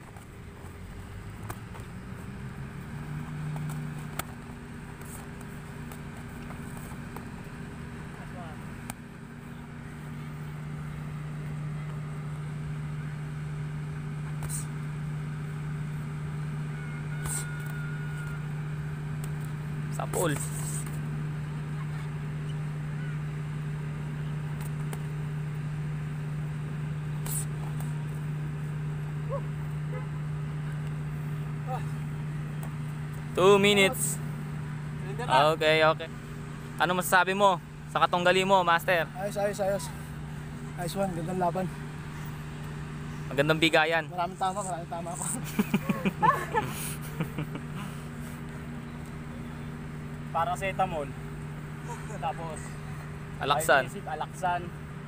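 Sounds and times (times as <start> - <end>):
motor vehicle engine humming: 0.0 - 55.0.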